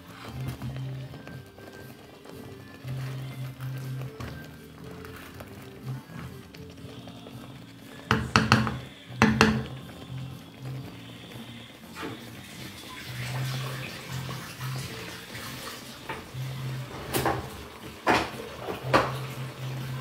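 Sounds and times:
sauce simmering in a frying pan: 0.0 - 20.0.

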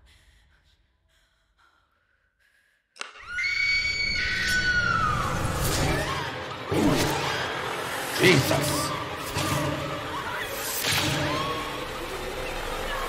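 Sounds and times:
high-pitched scream: 3.0 - 6.6
dense noisy soundtrack: 4.2 - 13.0.

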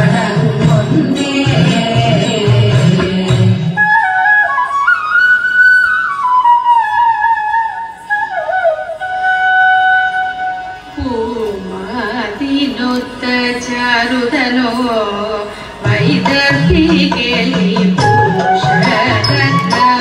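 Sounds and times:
flute melody: 3.7 - 11.2, 18.0 - 20.0.

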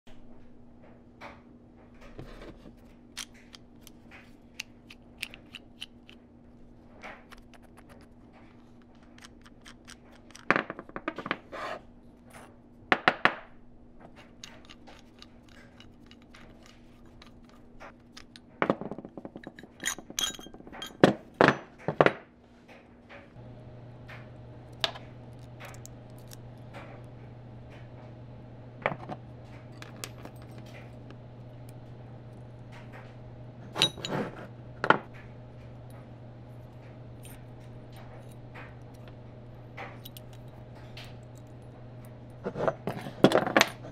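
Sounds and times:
low steady hum: 0.1 - 43.9
metal parts clinking on wood: 14.2 - 21.7, 29.7 - 31.0, 33.7 - 34.3, 39.8 - 41.6.

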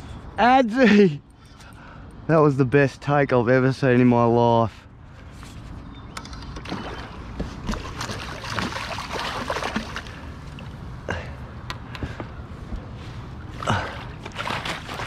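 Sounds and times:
water splashing and sloshing: 5.3 - 11.4, 12.1 - 15.0.

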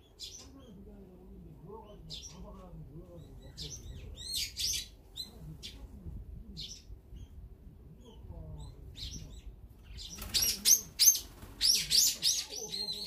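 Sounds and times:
bird calls: 0.0 - 0.8, 1.8 - 5.8, 8.0 - 13.0.

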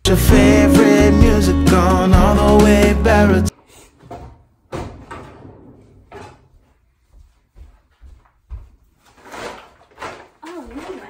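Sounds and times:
shopping bags rustling: 9.0 - 11.0.

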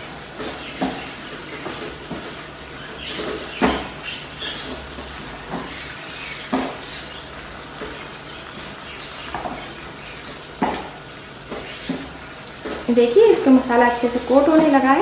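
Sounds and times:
chicken sizzling in sauce: 0.0 - 15.0
spatula knocking and scraping pan: 4.6 - 7.1, 9.3 - 13.0.

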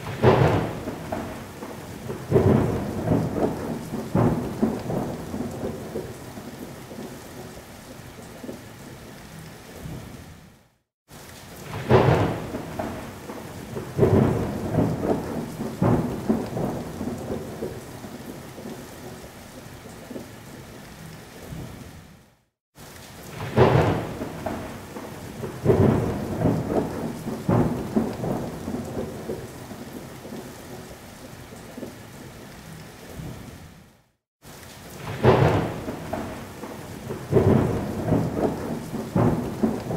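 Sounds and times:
thunder cracking and rumbling: 0.0 - 7.1, 11.6 - 19.2, 23.3 - 30.9, 34.9 - 39.9
steady rain: 0.0 - 39.9.

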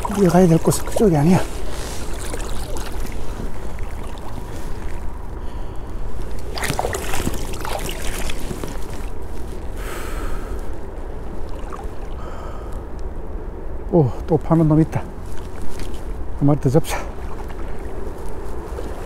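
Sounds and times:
water splashes: 0.0 - 5.2, 6.2 - 9.4, 11.3 - 12.4, 16.8 - 19.0
shallow water sloshing: 0.0 - 9.8, 10.5 - 12.4, 17.0 - 19.0
steady low rumble: 0.0 - 19.0.

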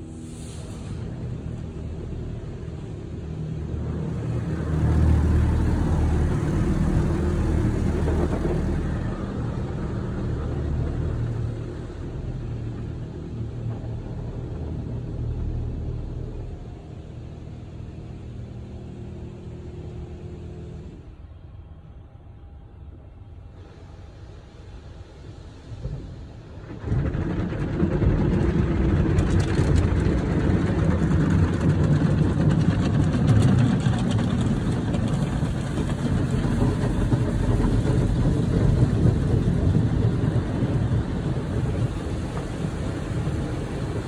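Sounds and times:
water rushing over car: 25.6 - 44.0.

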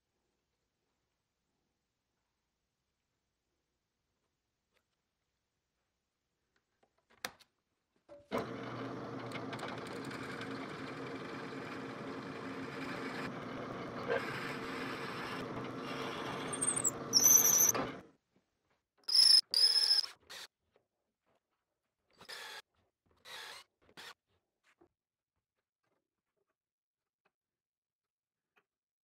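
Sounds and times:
drill press boring into wood: 8.3 - 18.0
drill bit squealing: 8.6 - 18.0, 19.1 - 20.2.

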